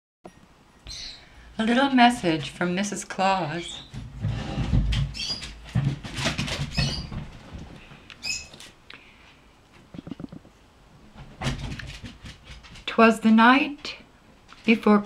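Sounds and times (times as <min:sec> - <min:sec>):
rustling and shuffling: 0:01.4 - 0:13.0.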